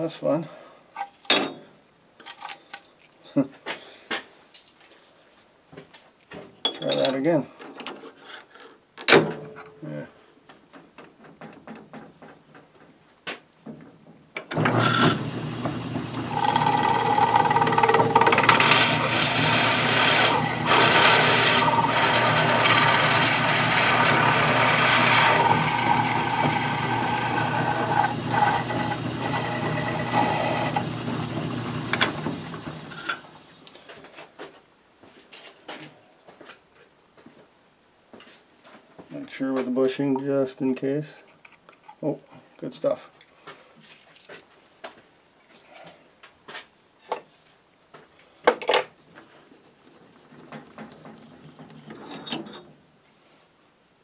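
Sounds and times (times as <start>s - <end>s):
lathe motor hum: 14.7s - 33.0s
drill boring high tone: 16.2s - 32.0s.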